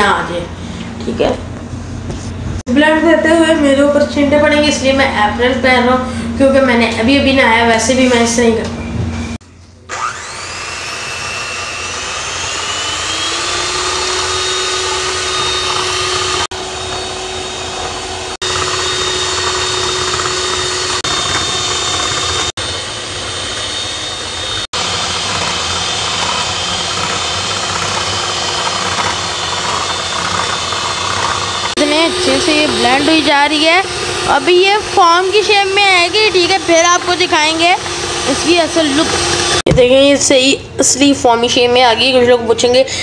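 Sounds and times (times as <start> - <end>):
electric hand mixer whining: 9.9 - 39.7.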